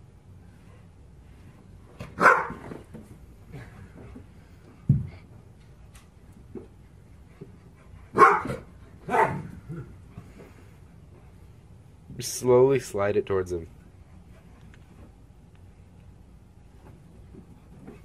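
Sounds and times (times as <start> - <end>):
dog barking: 2.2 - 2.6, 8.1 - 9.4.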